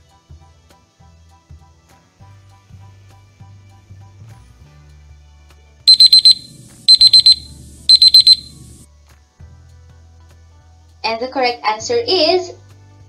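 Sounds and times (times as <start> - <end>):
digital alarm beeping: 5.9 - 8.8.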